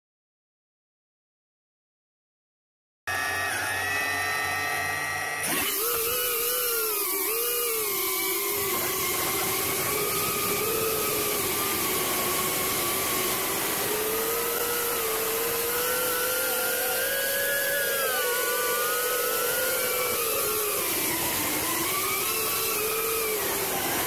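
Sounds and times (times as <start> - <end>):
drone motors whining: 3.1 - 24.0.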